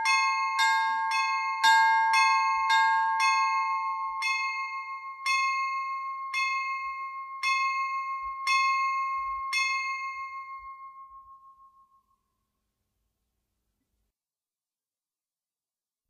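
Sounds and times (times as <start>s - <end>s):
church bell ringing: 0.0s - 11.0s.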